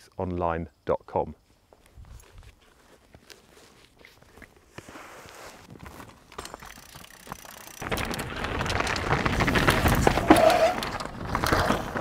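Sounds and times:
bike tyres on dirt rattling: 3.2s - 12.0s
small knocks of bike: 5.8s - 12.0s.

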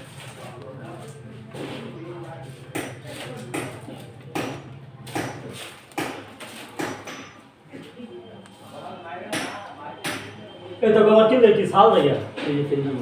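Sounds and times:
sharp knocks repeating: 2.7s - 7.4s, 9.3s - 10.4s.

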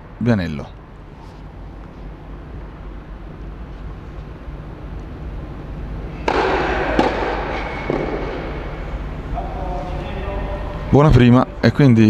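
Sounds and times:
steady low hum: 0.0s - 12.0s
racket hitting tennis ball: 6.0s - 9.1s.

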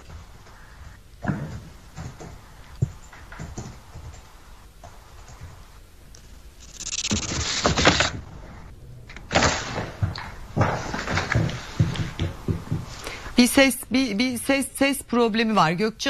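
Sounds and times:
noise bursts: 0.0s - 16.0s.

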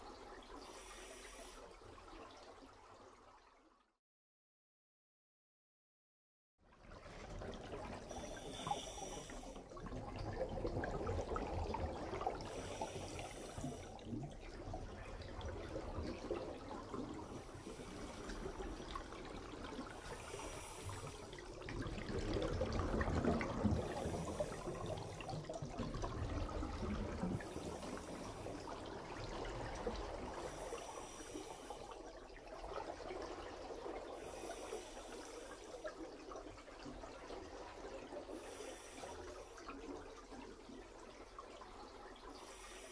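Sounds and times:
regulator inhale hiss: 0.6s - 1.8s, 8.1s - 9.7s, 12.4s - 14.1s, 17.5s - 18.7s, 20.0s - 21.5s, 23.6s - 25.5s, 27.4s - 28.8s, 30.3s - 32.0s, 34.2s - 35.9s, 38.3s - 39.6s, 42.4s - 42.9s
bubbling exhale: 7.9s - 14.4s, 16.5s - 32.1s, 34.0s - 36.0s, 38.3s - 39.6s, 42.4s - 42.9s.

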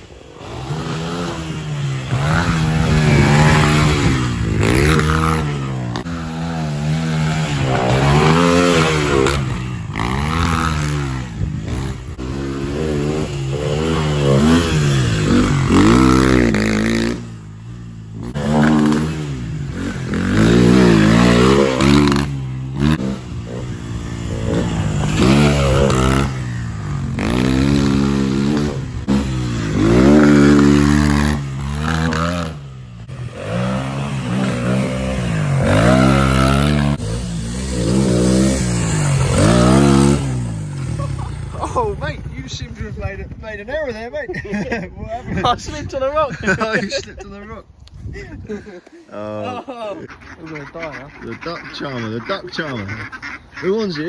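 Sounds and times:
motorbike engine revving: 0.0s - 42.1s.

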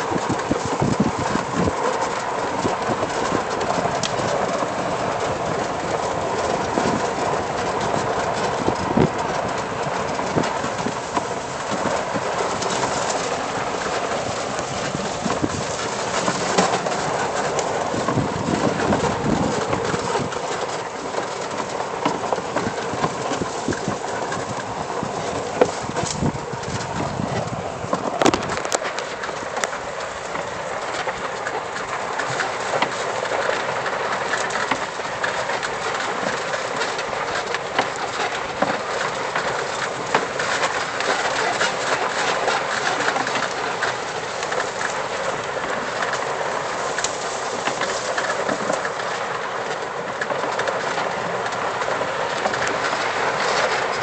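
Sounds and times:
cart clicking and rattling: 0.0s - 54.0s
golf cart tyre and road noise: 0.0s - 54.0s.

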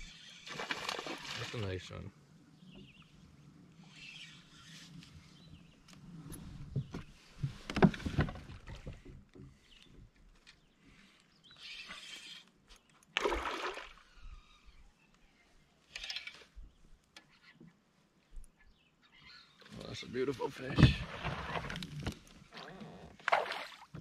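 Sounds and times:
water splashing around kayak: 0.5s - 1.8s, 13.2s - 14.1s, 20.5s - 24.0s.

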